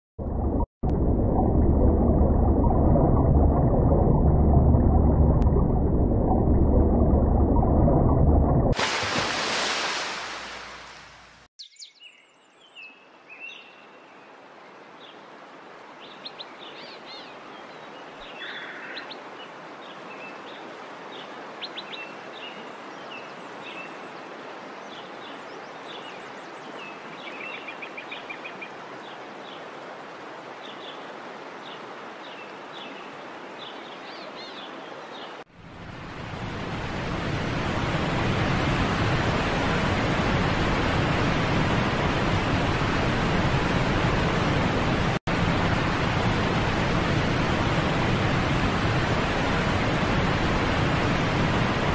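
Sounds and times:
water rushing over dam spillway: 8.7 - 11.4, 36.3 - 51.9
hiss of moving water: 8.8 - 11.5
birds chirping and trilling: 16.0 - 24.0.

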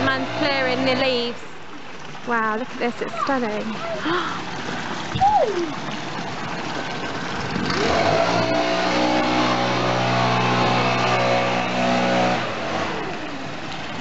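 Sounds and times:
leaf blower engine: 7.6 - 13.6.

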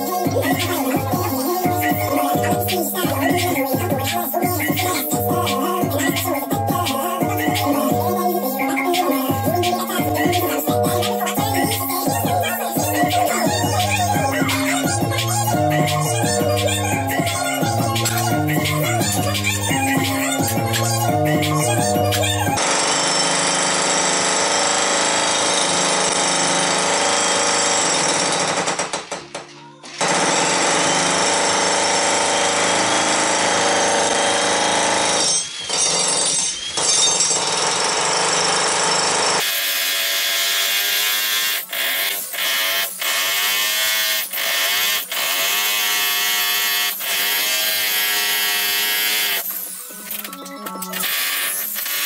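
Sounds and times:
music with singing voice: 0.0 - 22.7, 45.0 - 52.0
jackhammer chiselling concrete: 22.6 - 29.0, 30.0 - 49.8, 51.0 - 52.0.

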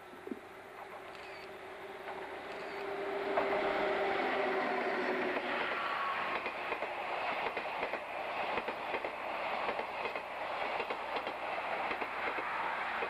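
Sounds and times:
faint whine: 0.0 - 4.8
train wheels clicking over rail joints: 0.7 - 1.4, 2.0 - 3.8, 4.6 - 13.0.

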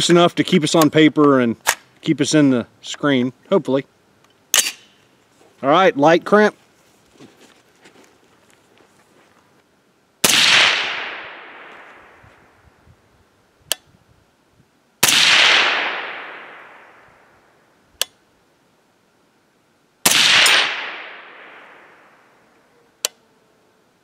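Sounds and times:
suppressed rifle shots: 10.2 - 12.2, 15.0 - 17.3, 20.0 - 22.3.

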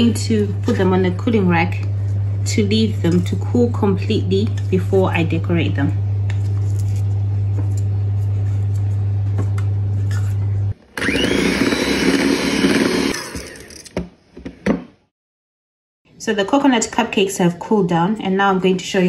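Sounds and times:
steady low hum: 0.0 - 10.8
electric hand mixer whining: 10.8 - 14.0.

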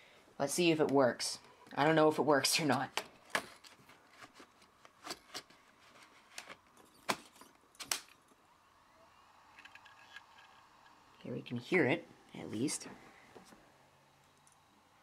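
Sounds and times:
hard drive whine spinning up: 8.4 - 11.2.

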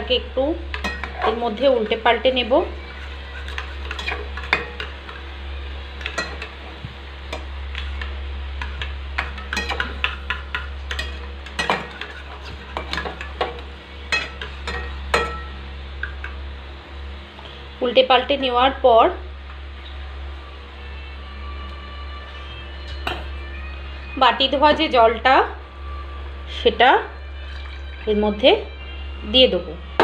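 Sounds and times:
steady low hum: 0.0 - 30.0
metal spoon scraping metal bowl: 2.8 - 5.2, 7.8 - 16.2.

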